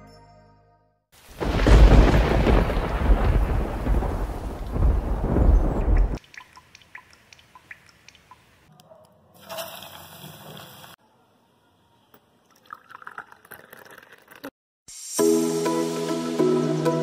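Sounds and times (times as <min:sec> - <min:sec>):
music: 0:00.0 - 0:01.1, 0:14.9 - 0:17.0
rain falling: 0:01.2 - 0:08.4
tea pouring into ceramic cup: 0:12.5 - 0:14.5.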